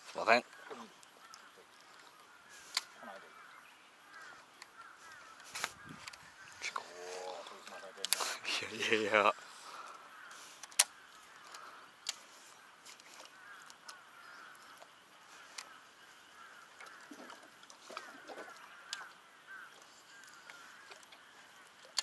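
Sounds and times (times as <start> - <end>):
sharp clicks: 2.7 - 2.9, 10.6 - 12.2
lower longer animal calls: 5.0 - 8.0.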